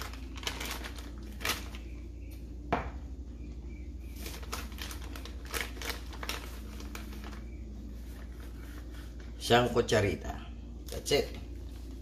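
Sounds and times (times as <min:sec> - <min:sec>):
plastic bag crinkling: 0:00.0 - 0:02.1, 0:04.1 - 0:08.9.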